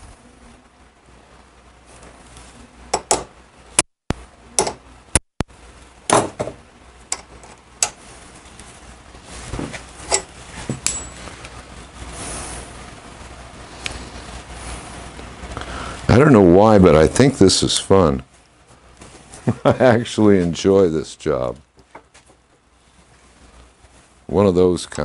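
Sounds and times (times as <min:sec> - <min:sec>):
sharp metal clinks and knocks: 0:10.1 - 0:11.3.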